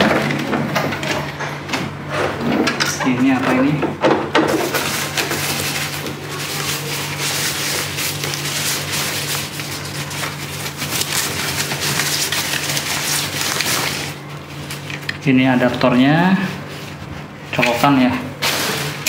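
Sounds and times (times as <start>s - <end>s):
packing material crinkling: 4.6s - 15.3s.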